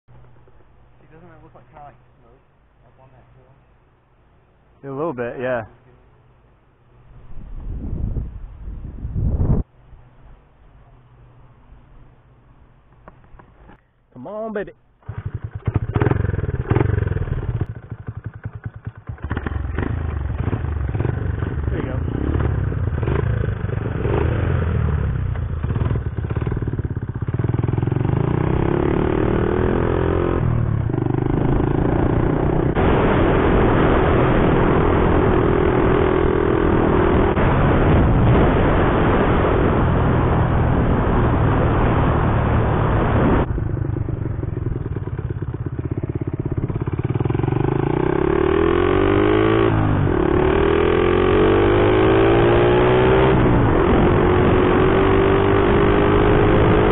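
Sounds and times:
wind and road noise: 0.1 - 56.9
small motorbike engines revving: 15.0 - 43.5, 44.1 - 56.9.

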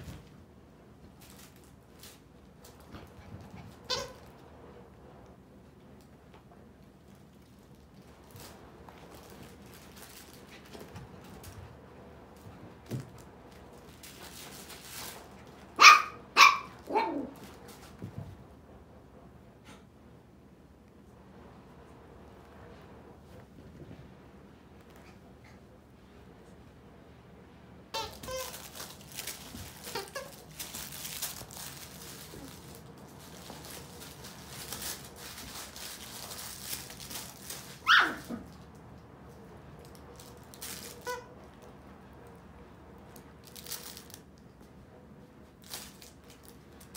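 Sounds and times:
puppies scuffling on fabric: 0.0 - 18.6, 28.0 - 46.9
puppy yapping: 15.8 - 17.4, 37.8 - 38.5.

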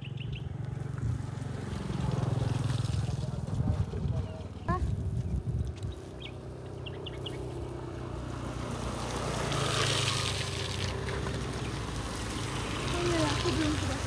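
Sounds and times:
vehicle engine running: 0.0 - 14.0.

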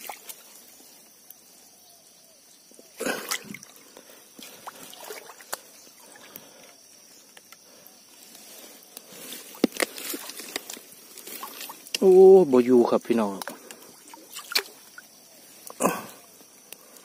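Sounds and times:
water splashing and trickling: 0.0 - 1.1, 2.8 - 6.8, 8.2 - 16.2
water dripping: 2.7 - 7.6, 8.9 - 16.0.

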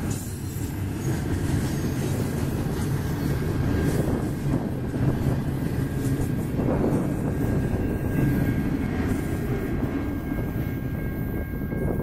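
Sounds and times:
train wheels rumbling on rail: 0.0 - 12.0.

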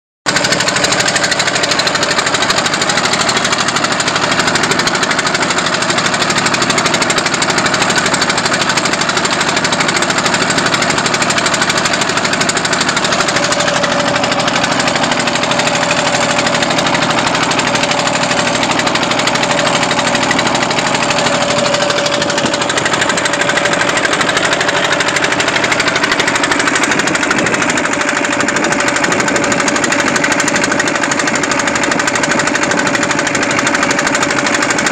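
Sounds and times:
boat engine running: 0.3 - 34.9
mid-pitched whine: 10.0 - 28.2.

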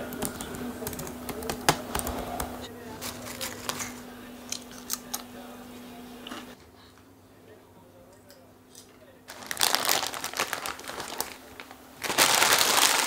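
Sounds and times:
laptop keyboard tapping: 0.0 - 2.6
steady low hum: 0.0 - 12.2
potato chips crunching: 9.3 - 13.0.

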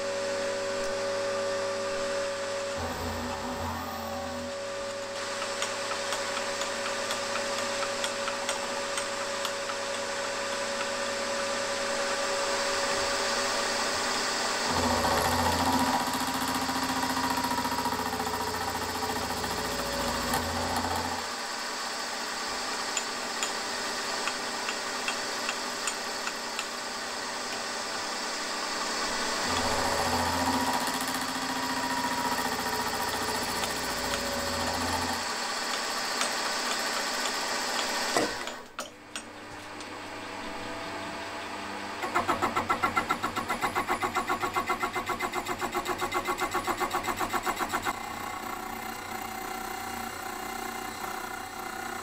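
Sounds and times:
milling machine cutting metal: 14.6 - 38.9.

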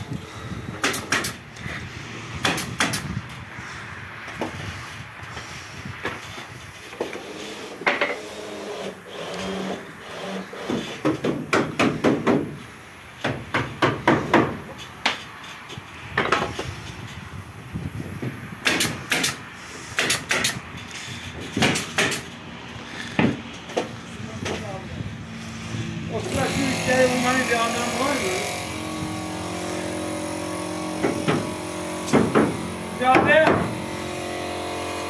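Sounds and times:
hammering on wood: 2.4 - 3.0, 10.6 - 12.6, 13.2 - 15.2, 18.6 - 19.4, 21.6 - 22.2, 31.0 - 33.8.

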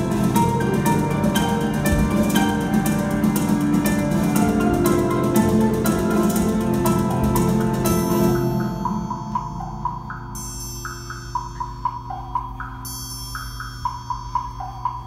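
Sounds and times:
plucked strings music: 0.0 - 10.1
held low notes: 0.0 - 10.5.

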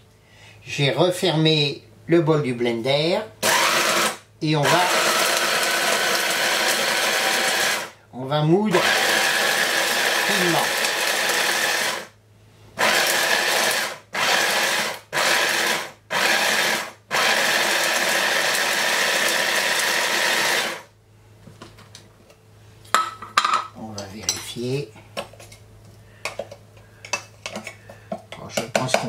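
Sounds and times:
electric chopper grinding spices: 3.4 - 8.0, 8.7 - 12.1, 12.8 - 20.9.

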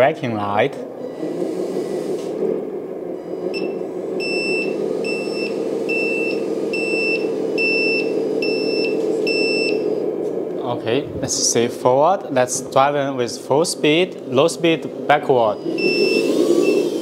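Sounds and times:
simulated truck engine: 0.7 - 17.0
reversing beeper: 3.1 - 10.1, 15.4 - 17.0.

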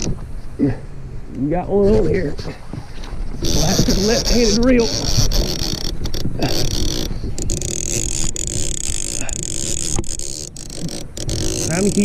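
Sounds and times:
scrapes and knocks of rod: 1.9 - 12.0
fishing reel cranking: 3.4 - 12.0.

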